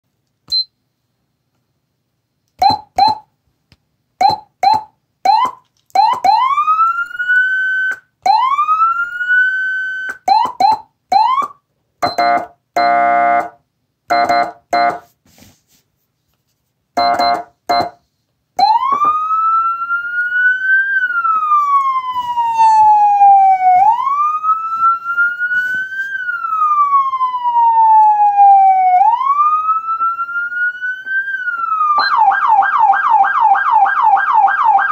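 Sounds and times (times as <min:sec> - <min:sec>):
electronic siren whoops: 0:04.6 - 0:11.6, 0:18.6 - 0:34.9
siren wail: 0:05.3 - 0:11.5, 0:18.6 - 0:34.9.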